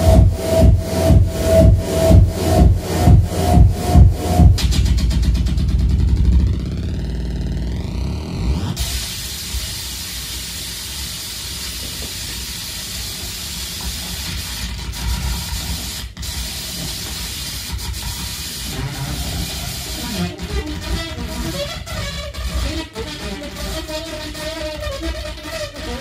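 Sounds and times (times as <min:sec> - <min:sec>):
harsh noise feedback: 0:00.0 - 0:09.8, 0:14.2 - 0:26.0.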